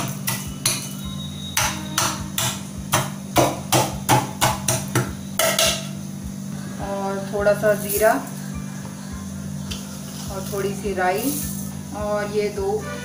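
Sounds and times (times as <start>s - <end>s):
metal pounder knocking in pot: 1.6s - 6.0s.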